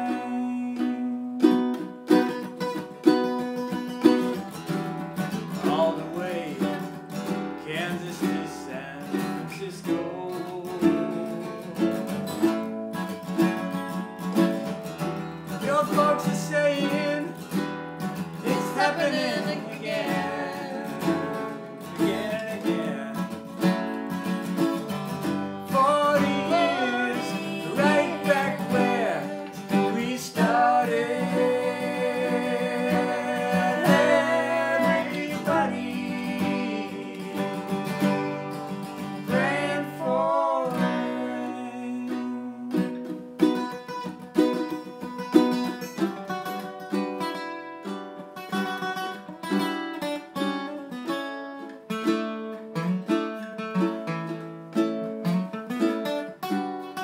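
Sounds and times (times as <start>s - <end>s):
man and woman singing in harmony: 0.0s - 1.3s, 5.6s - 7.0s, 15.6s - 17.4s, 18.4s - 23.5s, 25.6s - 43.1s
acoustic guitar: 0.0s - 57.0s
ukulele: 0.0s - 57.0s.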